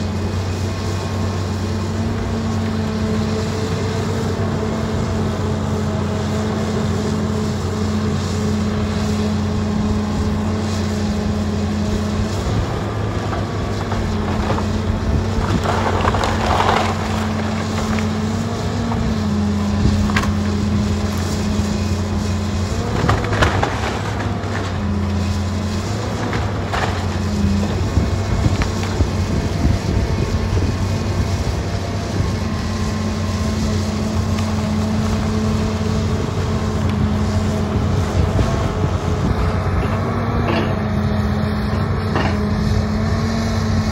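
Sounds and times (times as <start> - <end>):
excavator diesel engine running: 0.0 - 43.9
wood cracking and splintering: 11.8 - 32.0.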